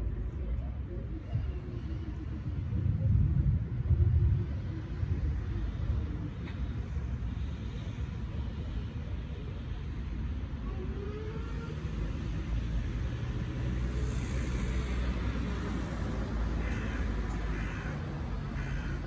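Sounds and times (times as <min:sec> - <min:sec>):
crows cawing: 0:16.6 - 0:19.0.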